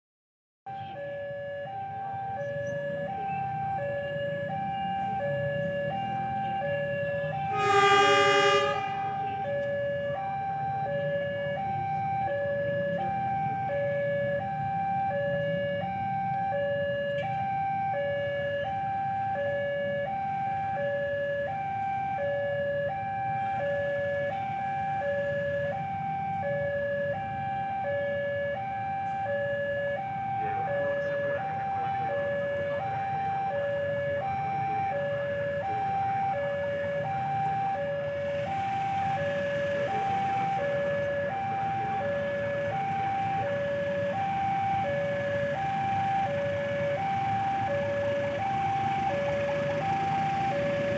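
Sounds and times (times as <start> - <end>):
level crossing alarm: 0.7 - 50.9
horn blast: 7.4 - 9.4.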